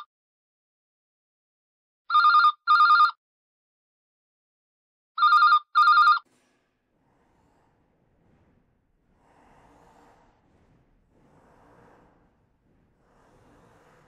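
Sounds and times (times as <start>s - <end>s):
telephone ringing: 2.1s - 3.2s, 5.2s - 6.2s.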